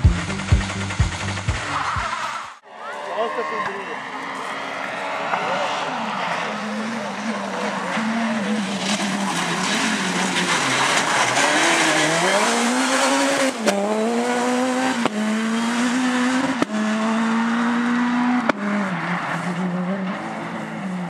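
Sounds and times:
rally car engine revving: 3.8s - 21.0s.

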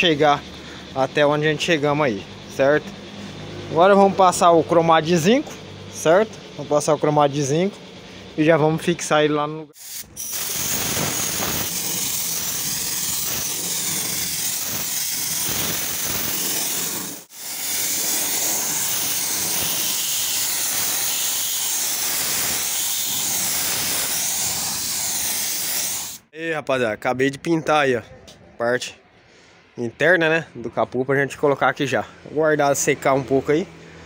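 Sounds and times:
spray gun hissing: 9.8s - 26.2s.

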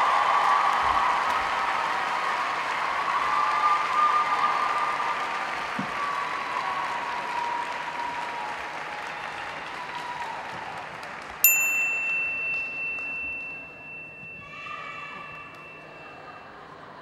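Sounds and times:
audience applause: 0.0s - 11.5s
electronic ding: 11.5s - 16.1s.

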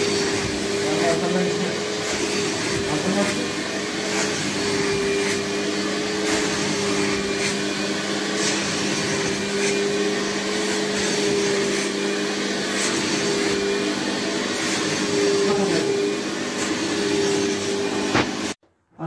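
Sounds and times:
carpet washer suction motor humming: 0.0s - 18.6s.

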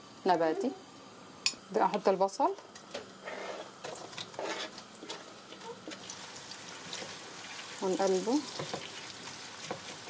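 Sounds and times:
onions sizzling in oil: 3.2s - 10.0s.

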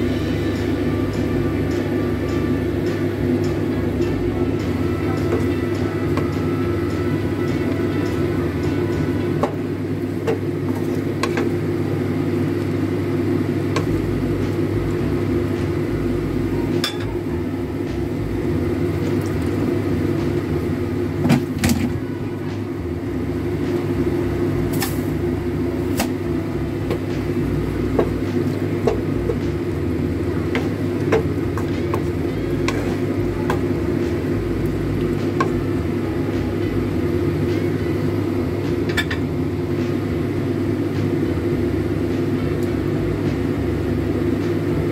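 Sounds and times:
low hum: 0.0s - 21.2s, 21.8s - 44.9s
broth simmering: 21.9s - 44.9s.

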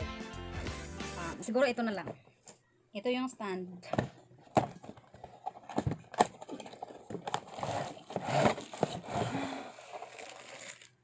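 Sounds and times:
packaging rustling and scraping: 4.2s - 11.0s.

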